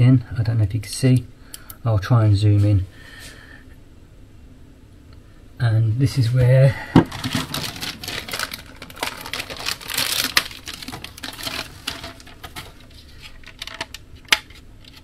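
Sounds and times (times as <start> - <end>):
plastic packaging crinkling: 7.0 - 15.0.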